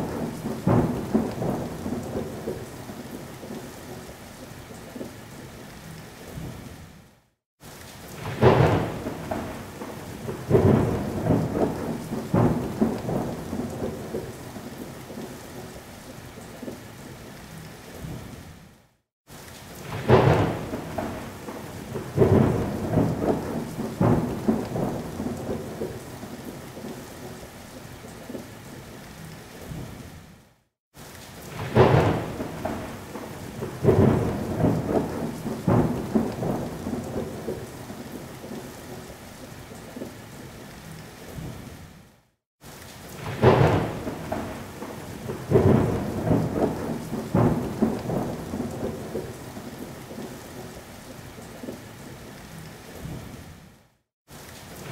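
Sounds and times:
thunder claps and rumbles: 0.0 - 4.1, 8.1 - 15.8, 19.8 - 27.4, 31.4 - 39.1, 43.1 - 50.7
heavy rain: 0.0 - 54.9.

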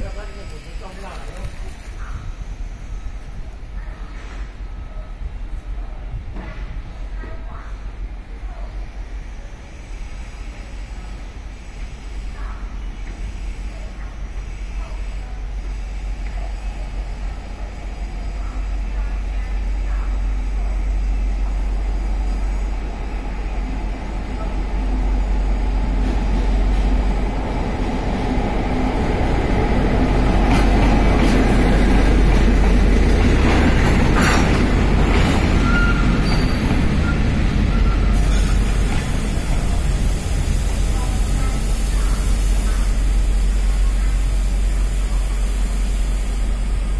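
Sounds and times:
diesel locomotive engine: 0.0 - 46.9
train wheels rolling: 11.6 - 46.9.

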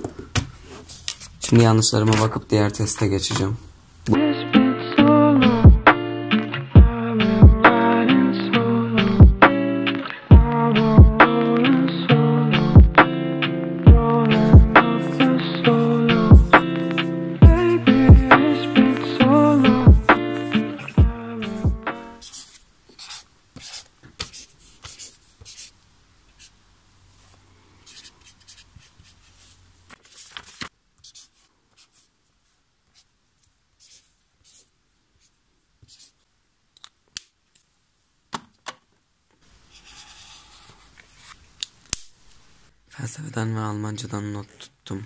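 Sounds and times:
pen scratching on paper: 22.2 - 25.7, 27.9 - 32.1, 33.8 - 36.2, 39.7 - 41.4
paper rustling: 28.7 - 32.0.

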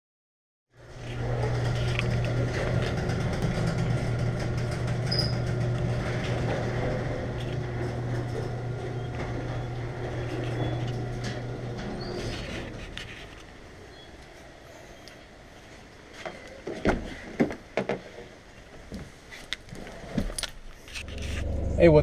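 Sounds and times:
garage door clicking and rattling: 0.8 - 13.1
garage door motor hum: 0.8 - 14.7, 20.9 - 22.0.

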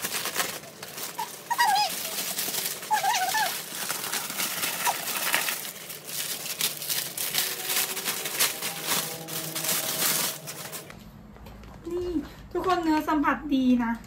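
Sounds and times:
plastic wrapping crinkling: 0.0 - 11.0.

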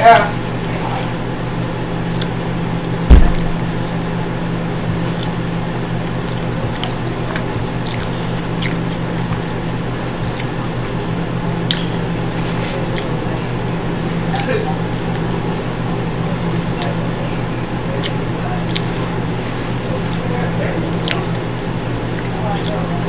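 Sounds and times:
steady low hum: 0.0 - 23.0
person chewing soft food: 0.9 - 23.0
dull thump: 3.1 - 3.8.

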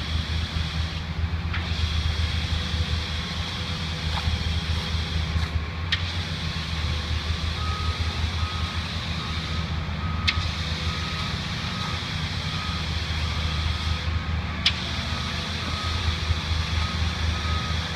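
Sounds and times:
heavy diesel machinery rumble: 0.0 - 17.9
reversing alarm beeping: 7.4 - 17.9.

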